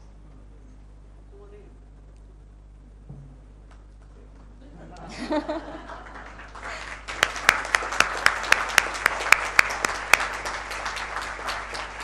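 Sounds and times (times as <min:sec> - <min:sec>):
audience applauding: 0:05.4 - 0:12.0
loud sharp claps: 0:06.0 - 0:12.0.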